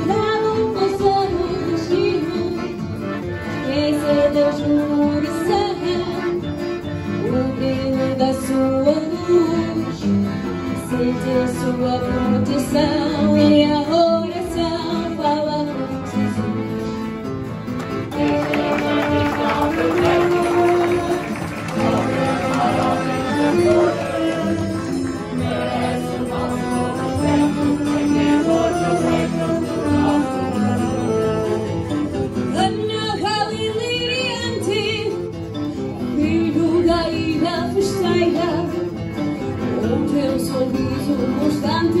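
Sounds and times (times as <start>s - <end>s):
acoustic guitars: 0.0s - 42.0s
person singing: 18.0s - 31.9s, 39.6s - 42.0s.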